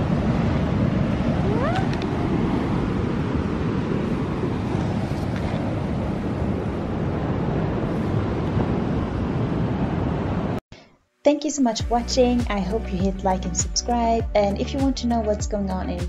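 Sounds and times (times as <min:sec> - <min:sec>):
wind rumble on microphone: 0:00.0 - 0:10.6
cat meowing: 0:01.4 - 0:02.0.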